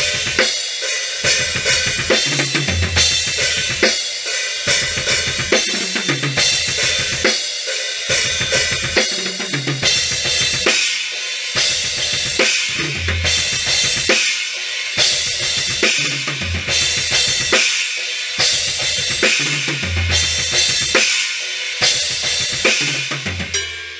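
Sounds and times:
drum kit playing: 0.0s - 23.9s
cymbal strokes: 20.6s - 23.9s.

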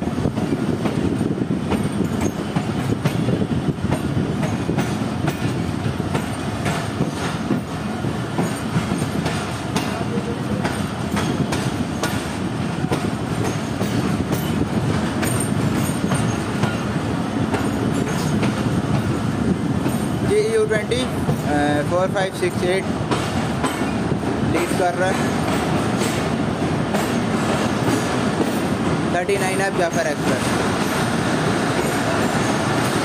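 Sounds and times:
train rumbling: 0.0s - 33.0s.

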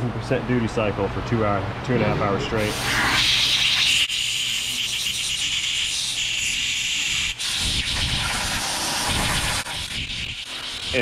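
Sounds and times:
nozzle spraying hiss: 2.6s - 11.0s.

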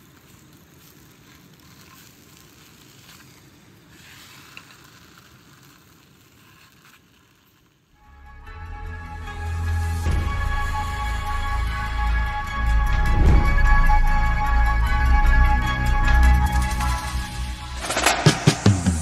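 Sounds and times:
music: 8.0s - 19.0s.

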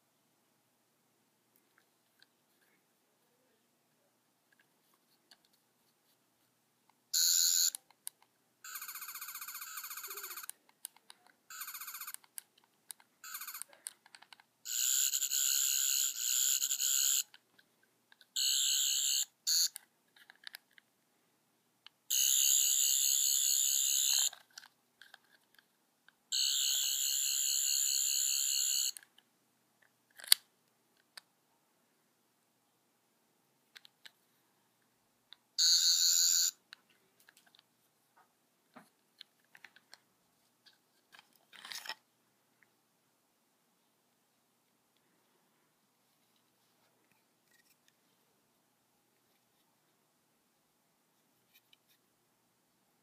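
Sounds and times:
toy high pulsing electronic buzz: 8.7s - 10.5s, 14.7s - 17.2s, 22.1s - 24.3s.

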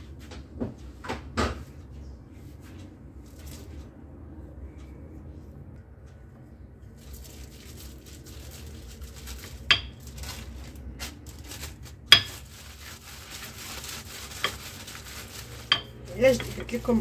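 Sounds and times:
plastic film crinkling: 7.0s - 17.0s.

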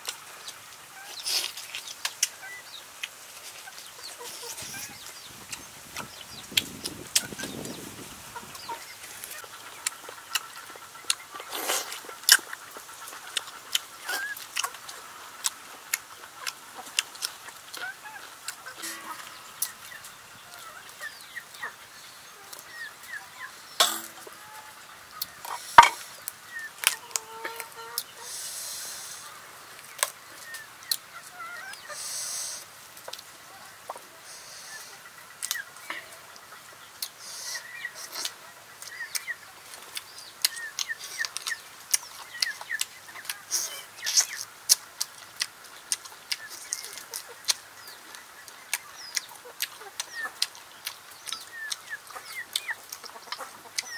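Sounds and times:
chickens clucking: 0.0s - 53.9s
birds calling: 0.4s - 53.9s
wet chewing and lip-smacking: 13.2s - 18.7s, 37.0s - 37.2s, 38.0s - 53.9s.

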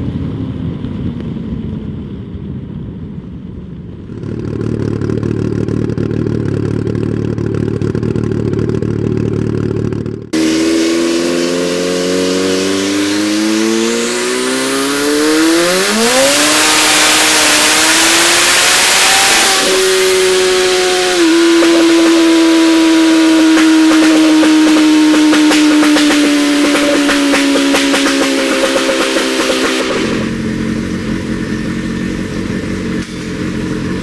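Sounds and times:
motorcycle engine revving: 4.0s - 34.0s
loud rushing noise: 10.3s - 34.0s.

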